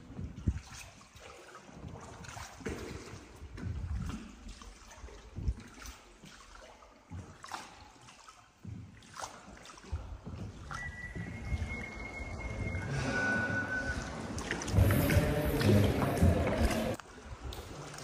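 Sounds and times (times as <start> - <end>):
water sloshing and trickling: 0.0 - 18.0
steady high tone: 10.9 - 16.8.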